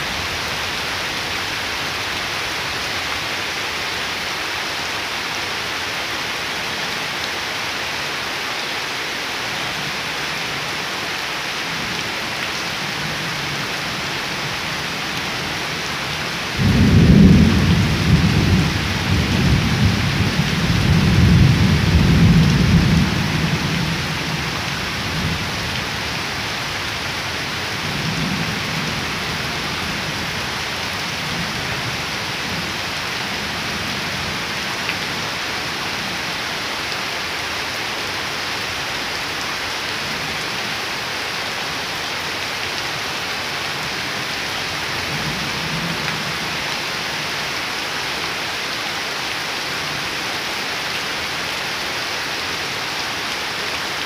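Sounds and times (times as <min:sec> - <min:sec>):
heavy rain on ground and leaves: 0:00.0 - 0:54.0
thunder rumbling: 0:16.6 - 0:23.9.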